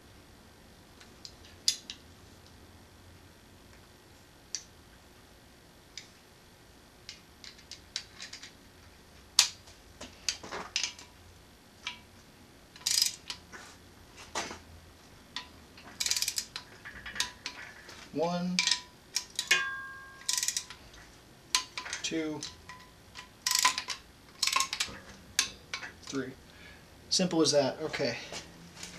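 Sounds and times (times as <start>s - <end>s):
ratchet wrench clicking: 12.8s - 13.4s, 15.4s - 17.6s, 18.6s - 19.6s, 20.2s - 20.8s, 21.5s - 26.2s
metal clinks: 18.6s - 20.8s.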